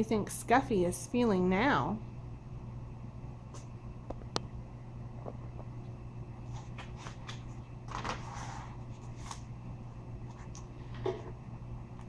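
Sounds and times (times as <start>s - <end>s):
paper page rustling: 6.5s - 9.5s.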